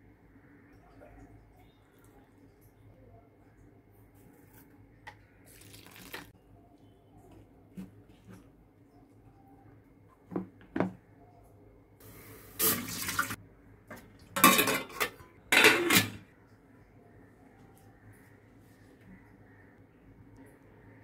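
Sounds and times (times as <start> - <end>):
metal pot clattering on stove: 14.4 - 16.2.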